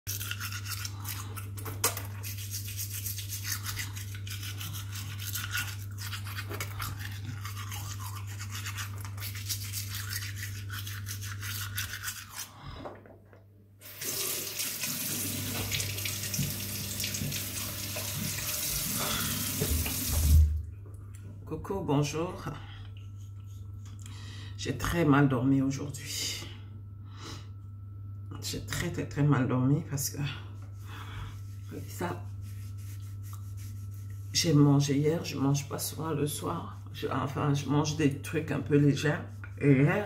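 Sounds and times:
toothbrush scrubbing teeth: 0.1s - 12.8s, 15.0s - 20.4s, 22.9s - 24.1s, 31.4s - 34.6s
low steady hum: 0.1s - 40.0s
tap running into sink: 14.0s - 20.5s.

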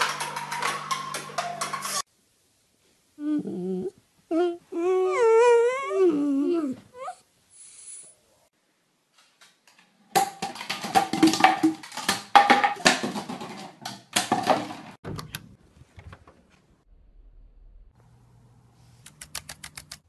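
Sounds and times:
plastic bottles clattering on wood: 10.1s - 15.0s.

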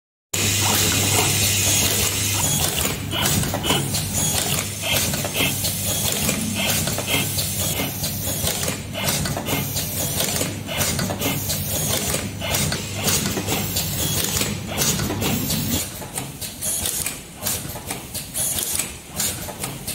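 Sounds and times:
machine humming: 0.4s - 10.1s
mechanical clicks and clacks: 0.4s - 19.9s.

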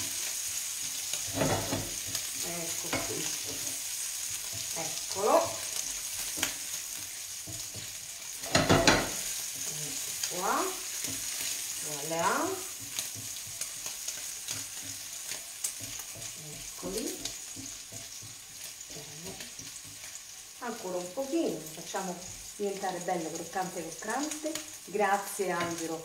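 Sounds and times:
wooden spoon scraping a pan: 0.0s - 20.6s
meat sizzling in a frying pan: 0.0s - 26.0s.

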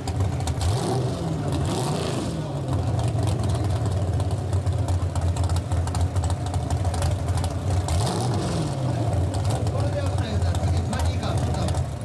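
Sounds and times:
car engine idling lumpy: 0.0s - 12.0s
engine revving: 0.4s - 4.0s, 7.6s - 11.8s.

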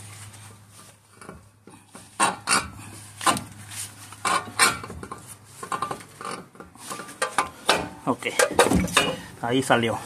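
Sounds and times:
metal clinks and knocks: 4.2s - 9.3s.

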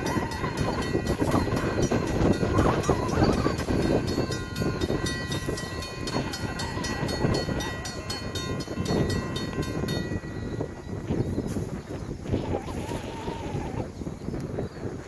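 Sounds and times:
railroad crossing bell dinging: 0.0s - 11.8s
wind buffeting microphone: 0.0s - 15.0s.

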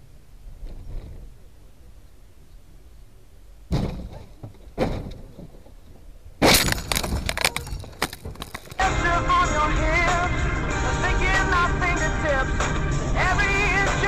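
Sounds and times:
vehicle crashing impacts: 3.7s - 9.2s
breaking and shattering crash: 6.4s - 8.9s.

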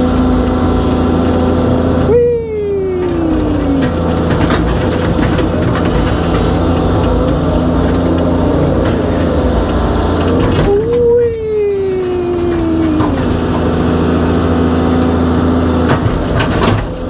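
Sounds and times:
excavator engine and hydraulics: 0.0s - 17.0s
scattered knocks: 3.1s - 11.1s, 15.8s - 17.0s.

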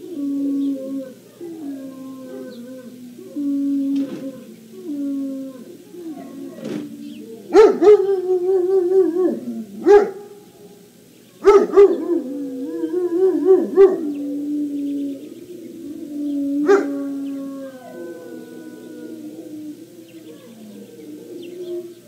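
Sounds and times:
puppy howling and whining: 11.4s - 15.2s, 16.0s - 22.0s.

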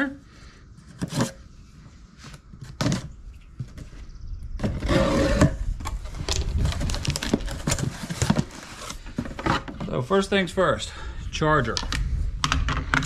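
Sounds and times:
cardboard scraping: 4.6s - 10.0s.

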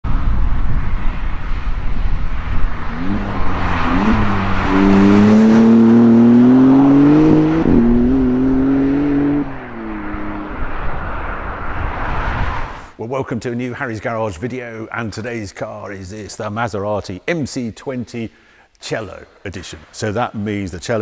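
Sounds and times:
road and wind noise: 0.0s - 13.0s
sports car accelerating past: 1.4s - 12.8s.

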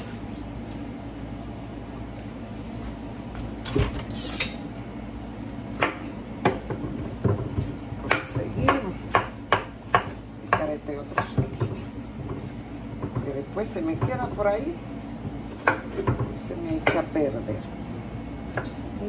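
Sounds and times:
knife tapping on cutting board: 5.8s - 11.8s.

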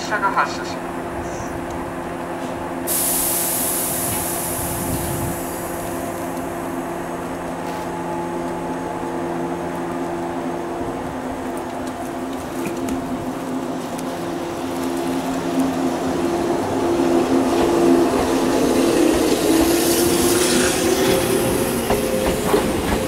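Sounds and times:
train equipment hum: 0.0s - 23.0s
compressed air hiss: 2.9s - 5.9s.

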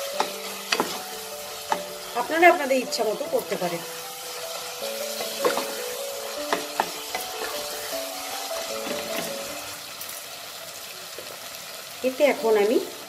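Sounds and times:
spatula stirring: 0.0s - 2.6s, 3.4s - 9.7s
vegetables sizzling in oil: 0.0s - 13.0s
spatula knocking against pan: 6.4s - 7.7s.

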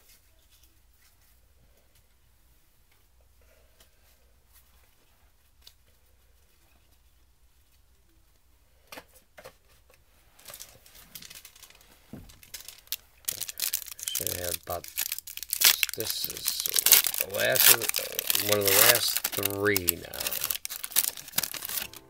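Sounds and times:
foil pack crinkling and tearing: 10.4s - 22.0s.

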